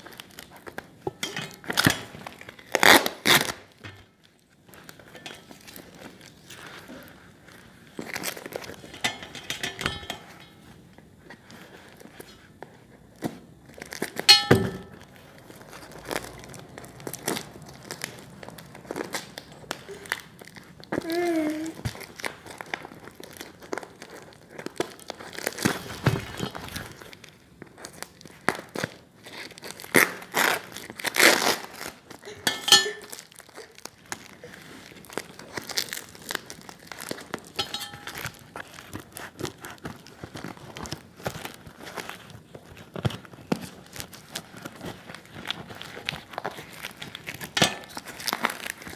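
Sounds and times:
scissors cutting plastic: 0.0 - 4.1, 27.9 - 48.9
plastic crinkling and tearing: 0.0 - 9.4, 10.0 - 14.3, 14.9 - 48.9.

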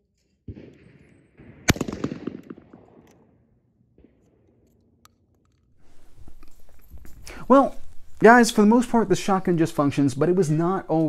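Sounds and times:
shotgun shot: 0.5 - 3.4.

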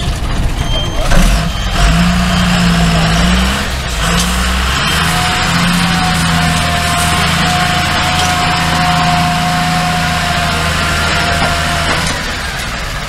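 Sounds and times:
truck diesel engine under load: 0.0 - 13.0.

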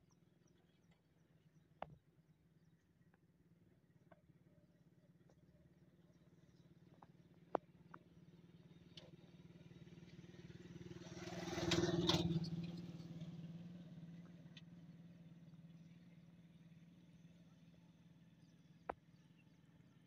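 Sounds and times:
motor rickshaw driving past: 8.2 - 18.2.

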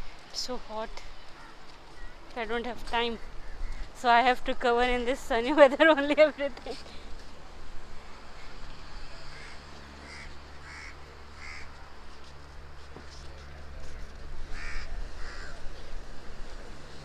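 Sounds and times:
crows cawing: 1.3 - 2.1, 9.2 - 11.8, 14.5 - 15.6.

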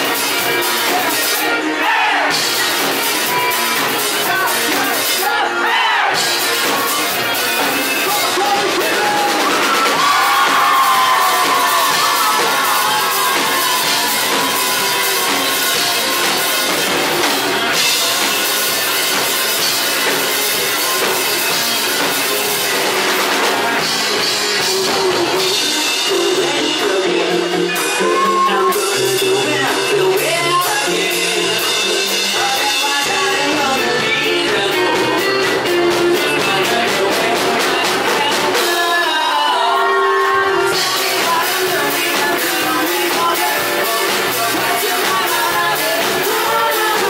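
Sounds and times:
rock band playing live: 0.0 - 47.0
male lead vocal singing: 4.2 - 16.2, 24.6 - 47.0.

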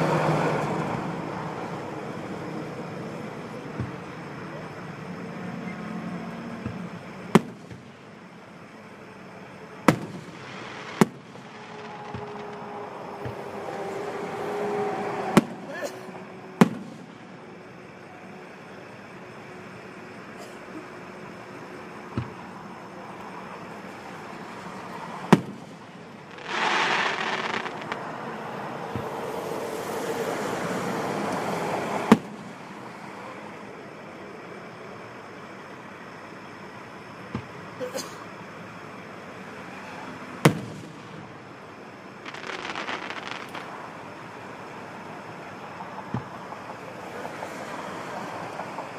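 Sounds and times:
fireworks bangs: 6.6 - 8.0, 9.8 - 17.4, 25.2 - 29.9, 32.0 - 32.7, 40.4 - 41.4, 42.2 - 44.1
rushing hiss: 10.2 - 13.8, 25.7 - 28.2.

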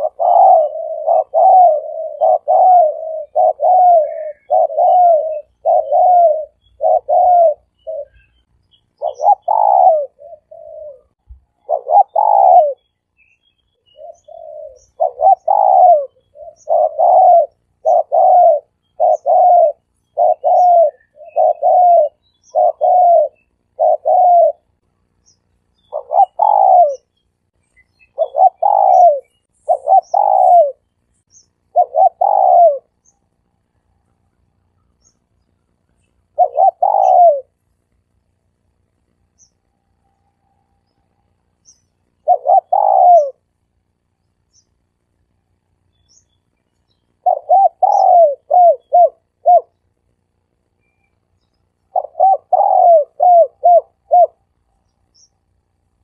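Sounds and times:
dove cooing: 0.0 - 12.8, 13.8 - 25.2, 25.8 - 27.1, 28.1 - 30.8, 31.6 - 33.4, 36.2 - 37.6, 42.1 - 43.6, 47.2 - 49.8, 51.9 - 54.7
small birds chirping: 0.0 - 56.0.

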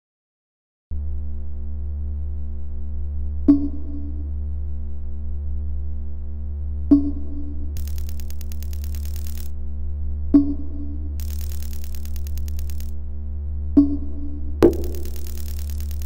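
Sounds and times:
low synthesizer drone: 11.0 - 16.0
sharp struck accents: 14.6 - 16.0.

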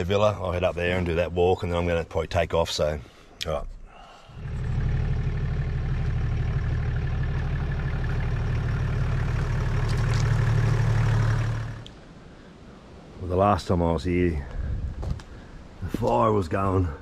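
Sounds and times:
car engine running: 4.3 - 11.9.

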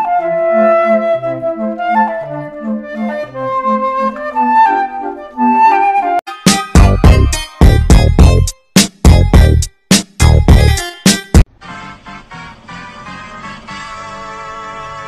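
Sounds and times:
woodwind melody: 0.0 - 7.4, 11.6 - 15.0
bouncing bass notes: 6.5 - 11.4.

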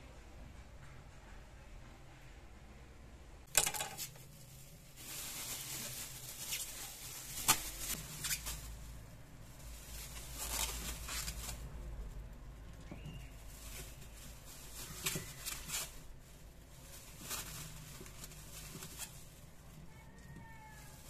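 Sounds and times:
corn cobs knocking and clattering: 3.5 - 4.6, 12.8 - 16.2
plastic bag crinkling: 3.5 - 12.1, 13.0 - 21.0.

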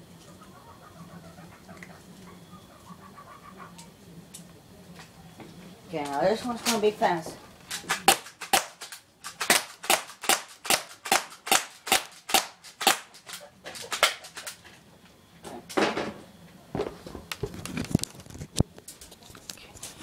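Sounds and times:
airsoft gun shots: 7.8 - 14.5.

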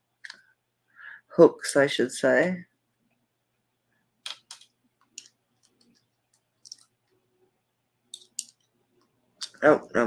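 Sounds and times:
small metal jewelry clicking: 4.2 - 6.9, 8.1 - 8.7.

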